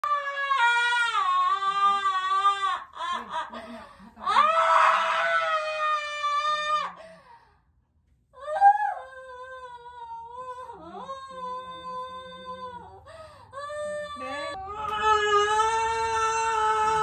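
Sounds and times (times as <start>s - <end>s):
woman screaming in pain: 4.2s - 7.0s, 13.6s - 17.0s.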